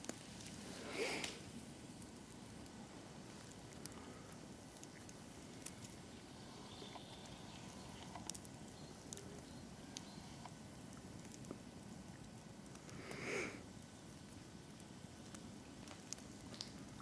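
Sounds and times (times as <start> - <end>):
twigs crackling underfoot: 3.2 - 11.6.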